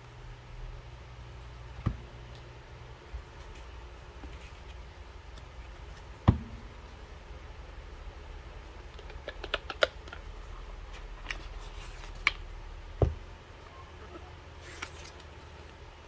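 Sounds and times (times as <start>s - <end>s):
soft thud: 6.2s - 6.8s
cards clicking and tapping: 8.9s - 10.2s.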